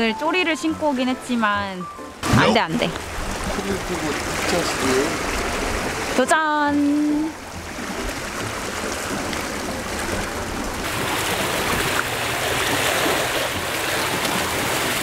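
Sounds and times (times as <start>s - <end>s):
sea waves washing against rocks: 2.7s - 6.6s, 7.4s - 15.0s.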